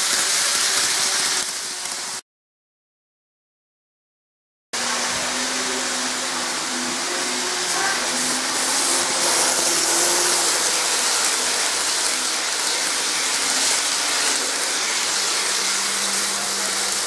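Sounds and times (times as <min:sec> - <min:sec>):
model train motor hum: 0:04.8 - 0:17.0
steady loud hiss: 0:04.8 - 0:17.0.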